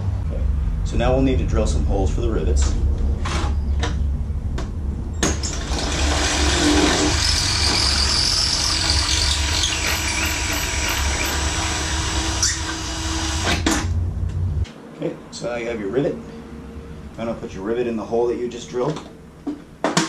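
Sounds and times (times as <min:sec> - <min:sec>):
drill boring through sheet metal: 0:05.4 - 0:13.9.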